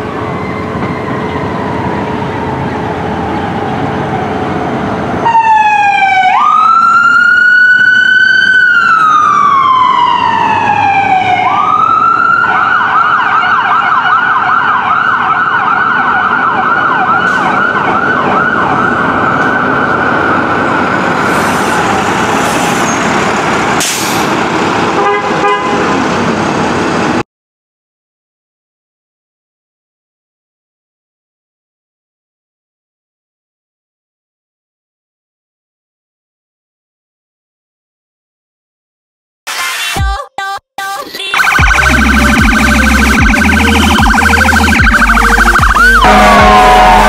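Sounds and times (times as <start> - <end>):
fire truck siren: 0.0 - 27.2, 41.1 - 47.0.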